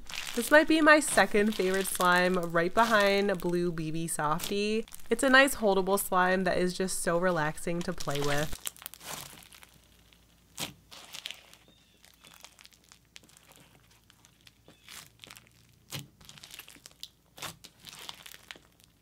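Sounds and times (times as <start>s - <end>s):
hands squishing slime: 0.0s - 3.2s, 8.0s - 9.8s, 10.6s - 18.8s.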